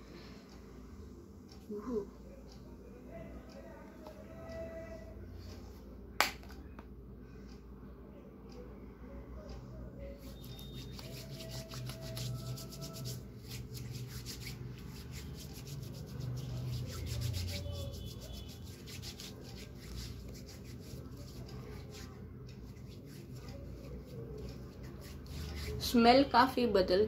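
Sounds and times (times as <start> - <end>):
hands rubbing together: 10.2 - 25.9.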